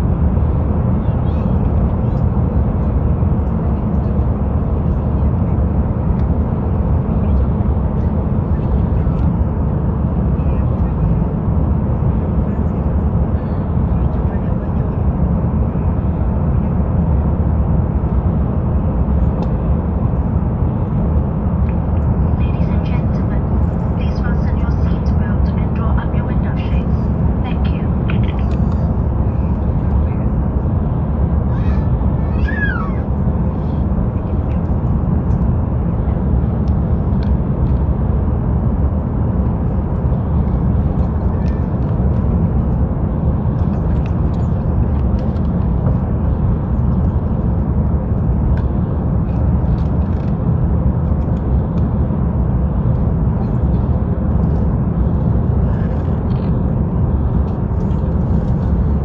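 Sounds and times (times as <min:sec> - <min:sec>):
airliner cabin airflow and engines: 0:00.0 - 0:59.0.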